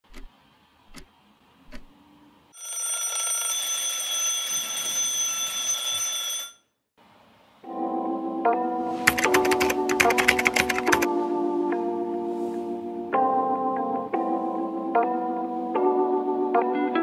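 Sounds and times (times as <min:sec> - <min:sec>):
alarm clock ringing: 0:02.6 - 0:06.7
music: 0:07.6 - 0:17.0.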